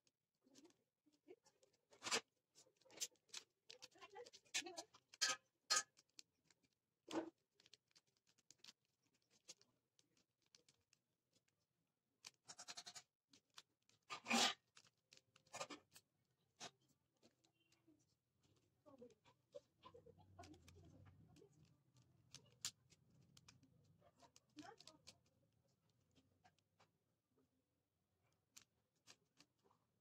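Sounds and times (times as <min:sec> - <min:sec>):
puzzle cube layers clicking: 0:01.9 - 0:11.6, 0:20.4 - 0:26.7.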